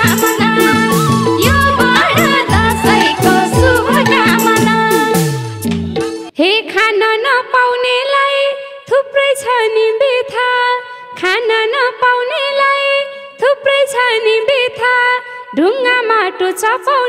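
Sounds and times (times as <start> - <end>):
folk melody lead line: 0.0 - 6.3.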